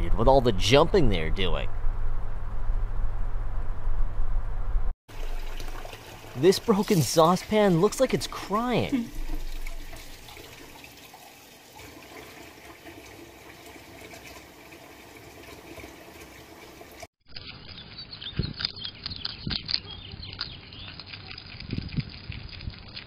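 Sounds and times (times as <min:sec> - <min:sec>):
water trickling into a metal sink: 0:05.1 - 0:17.1
low thumps: 0:09.0 - 0:10.3.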